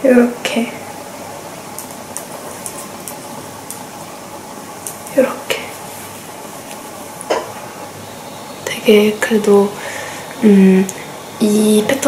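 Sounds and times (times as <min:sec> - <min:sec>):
knitted sweater rustling: 0:01.6 - 0:07.3.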